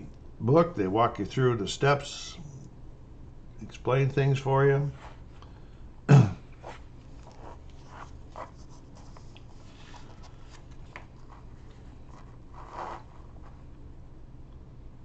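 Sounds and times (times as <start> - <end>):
book pages turning: 6.6 - 13.6.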